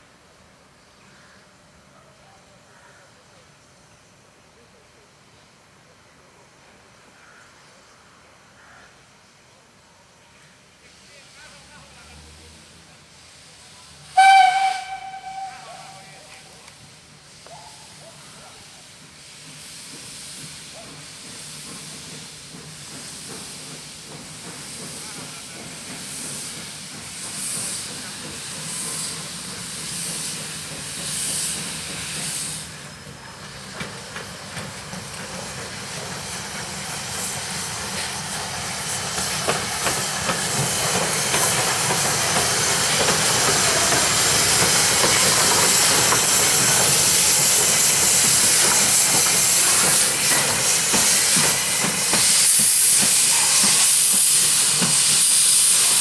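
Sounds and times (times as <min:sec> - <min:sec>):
steam hissing: 0:10.3 - 0:56.0
steam locomotive exhaust chuffs: 0:12.7 - 0:56.0.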